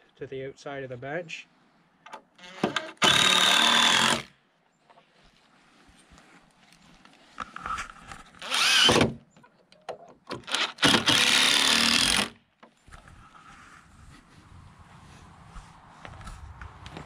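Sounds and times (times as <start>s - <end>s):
impact driver driving screws: 2.4s - 4.3s, 8.4s - 9.2s, 10.3s - 12.4s.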